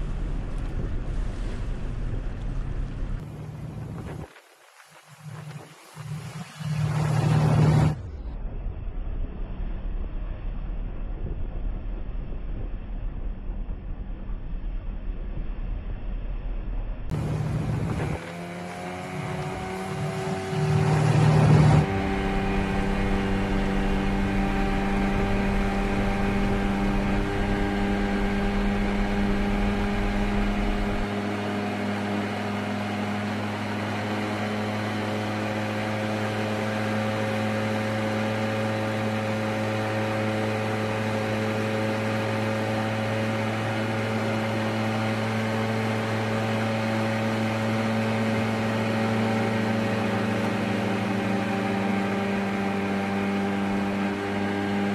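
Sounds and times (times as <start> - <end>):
boat engine running: 5.2 - 8.2, 17.1 - 54.9
loud rush of noise: 17.1 - 31.2.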